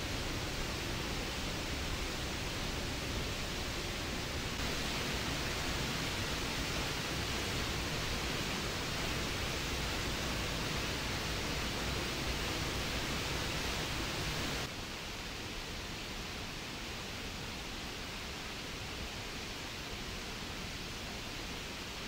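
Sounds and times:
waterfall rushing over rocks: 0.0 - 22.0.

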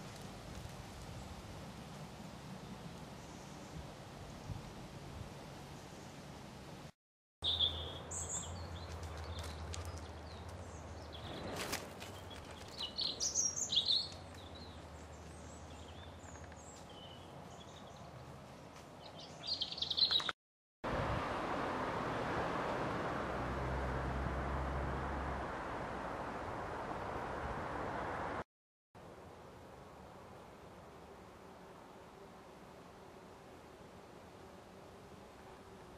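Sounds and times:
steady outdoor hiss: 0.0 - 20.3, 20.9 - 28.4, 29.0 - 35.9
small birds chirping: 7.4 - 20.4.

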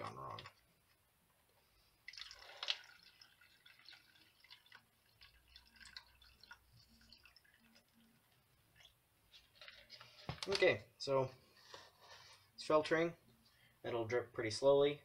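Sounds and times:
liquid splashing into filter: 2.0 - 10.1
liquid trickling and dripping: 2.0 - 10.2.

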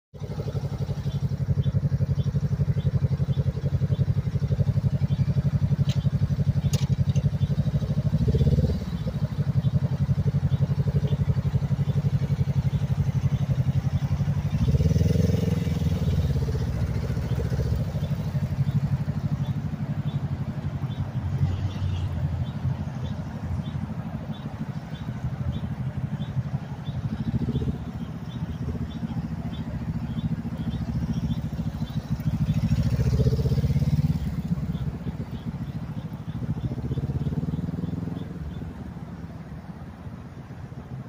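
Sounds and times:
motorcycle engine idling and revving: 0.1 - 41.0.

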